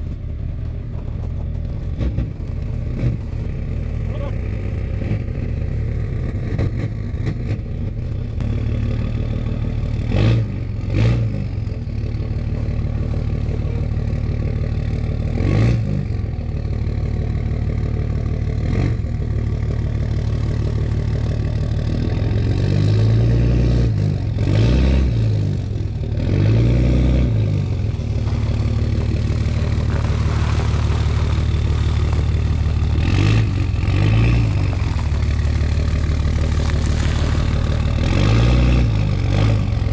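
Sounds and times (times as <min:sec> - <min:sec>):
clunks: 0:00.0 - 0:03.2
diesel engine revving under load: 0:01.3 - 0:39.9.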